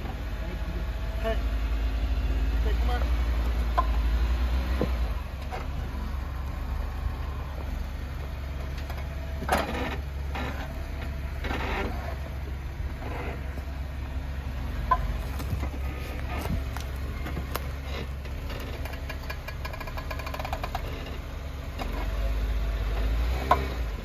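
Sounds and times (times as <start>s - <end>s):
car engine rumbling low: 0.0s - 24.0s
crunching on rocks: 14.4s - 19.3s.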